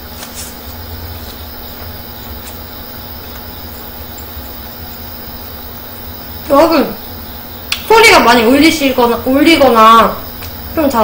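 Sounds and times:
electric fan humming: 0.0s - 11.0s
faint clicks: 7.7s - 7.9s.

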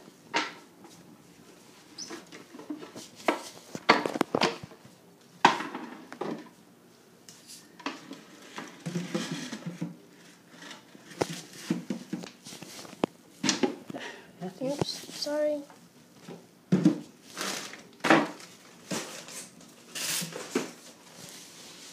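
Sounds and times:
wood scraping on tile floor: 7.5s - 13.0s, 18.9s - 21.9s.

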